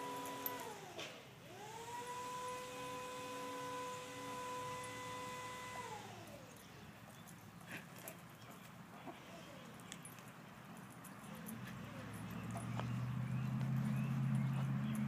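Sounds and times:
paw clicks and scuffles: 0:06.6 - 0:15.0
dogs whimpering and yipping: 0:11.2 - 0:15.0.

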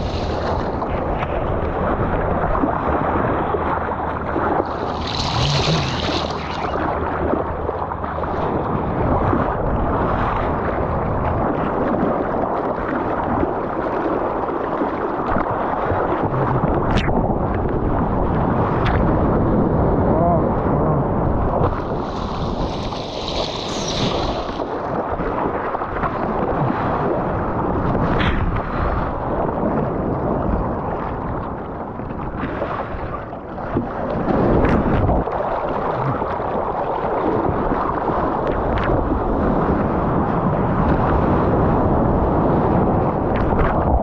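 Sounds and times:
water rushing around surfboard: 0:00.0 - 0:44.0.

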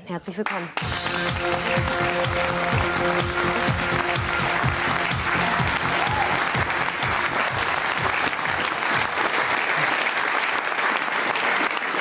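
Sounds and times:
music with bass line: 0:00.8 - 0:08.7
audience applauding: 0:00.8 - 0:12.0.

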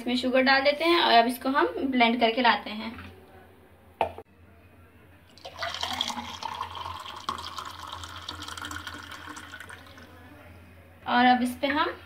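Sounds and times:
milkshake pouring into glass: 0:05.3 - 0:10.3.

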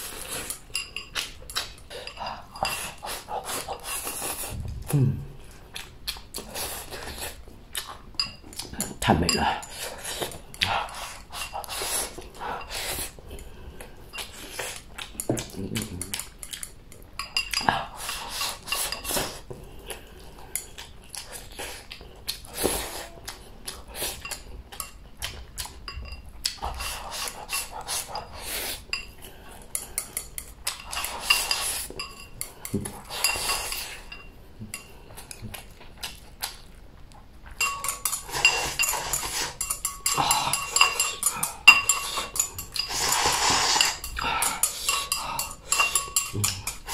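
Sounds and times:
chewing and slurping: 0:00.0 - 0:46.9
chopsticks clicking against a bowl: 0:37.6 - 0:46.9.

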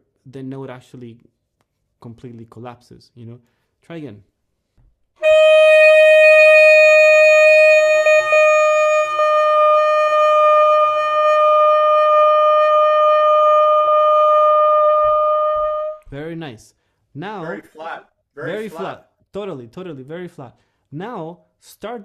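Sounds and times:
saxophone long steady note: 0:05.2 - 0:16.0.

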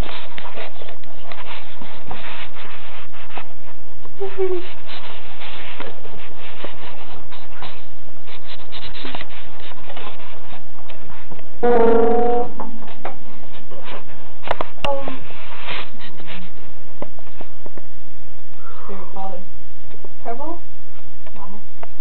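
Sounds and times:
loud pitched tone: 0:11.6 - 0:12.6.

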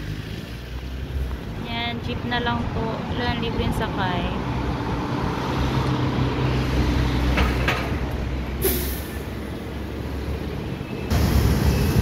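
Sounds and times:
diesel vehicle droning: 0:00.0 - 0:12.0
road traffic: 0:00.0 - 0:12.0
sharp hiss of air: 0:08.6 - 0:09.3.

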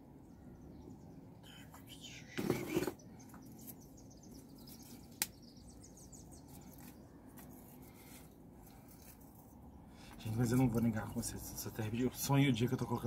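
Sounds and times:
faint handling of bark pieces: 0:06.4 - 0:10.9.

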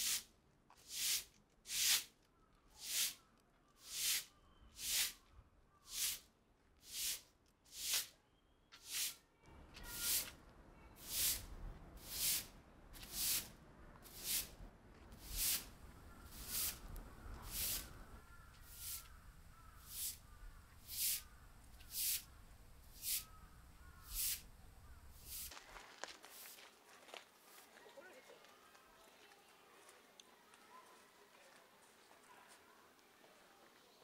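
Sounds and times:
broom sweeping ground: 0:00.0 - 0:02.2, 0:02.8 - 0:03.2, 0:03.8 - 0:05.2, 0:05.8 - 0:08.2, 0:08.8 - 0:09.2, 0:09.8 - 0:18.0, 0:18.6 - 0:19.2, 0:19.8 - 0:22.3, 0:22.9 - 0:23.4, 0:24.0 - 0:24.5, 0:25.1 - 0:27.7
low steady background noise: 0:00.0 - 0:34.0.

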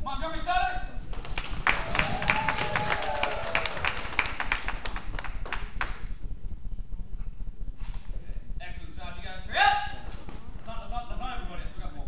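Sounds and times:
audience clapping: 0:01.1 - 0:06.1.

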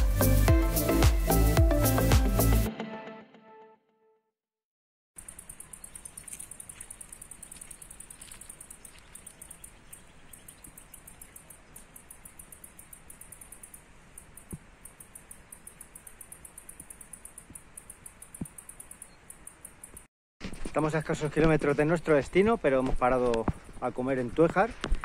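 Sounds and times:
insects pulsing chorus: 0:05.2 - 0:20.1.

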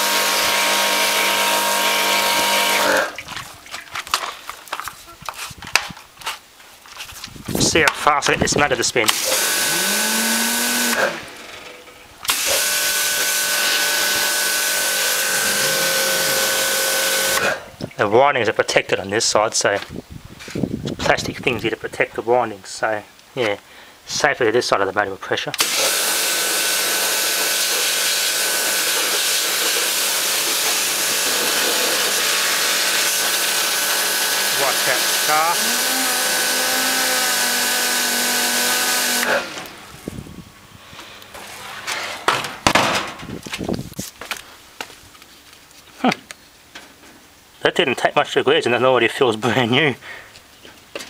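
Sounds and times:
pump whine: 0:00.0 - 0:03.4, 0:09.1 - 0:17.8, 0:25.6 - 0:42.3
high whine: 0:07.6 - 0:17.6
pressure washer water jet hiss: 0:12.3 - 0:17.6, 0:25.6 - 0:39.7.

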